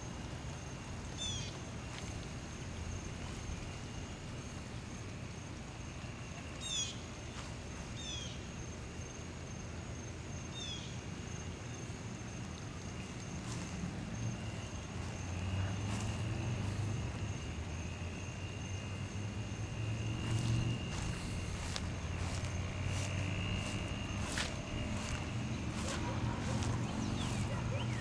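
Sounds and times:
high-pitched insect drone: 0:18.2 - 0:28.0.

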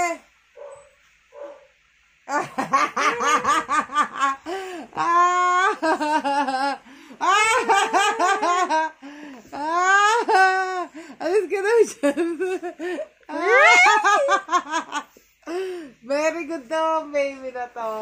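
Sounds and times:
hearty laughter: 0:02.3 - 0:09.1
high squeals of laughter: 0:07.2 - 0:08.9, 0:13.3 - 0:14.8.

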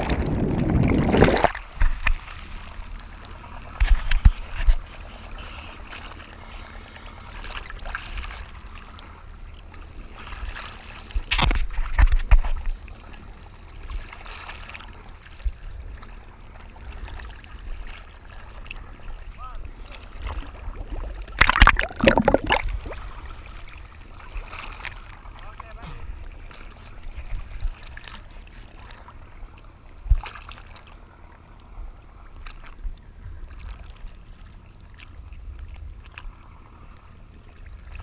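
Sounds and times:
rush of bubbles underwater: 0:00.0 - 0:02.0, 0:20.6 - 0:23.2
waves sloshing and splashing: 0:00.0 - 0:38.0.

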